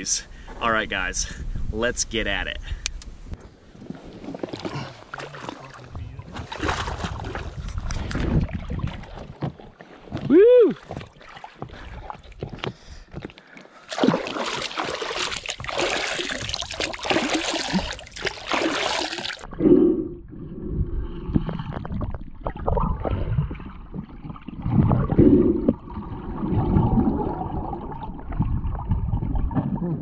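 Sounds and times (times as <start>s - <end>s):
water splashing: 3.7s - 12.6s, 13.8s - 19.5s
gurgling bubbles: 3.8s - 12.5s, 13.9s - 30.0s
muffled underwater rumble: 19.5s - 30.0s.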